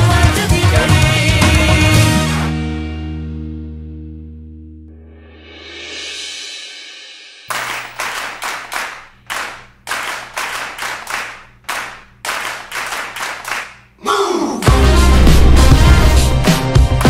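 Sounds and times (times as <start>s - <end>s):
loud music: 0.0s - 3.4s, 14.6s - 17.0s
hands clapping: 7.5s - 13.9s, 16.4s - 17.0s.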